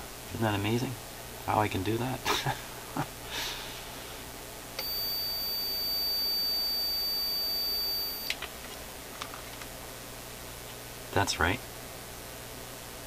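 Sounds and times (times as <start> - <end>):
multimeter continuity beep: 4.8 - 8.4.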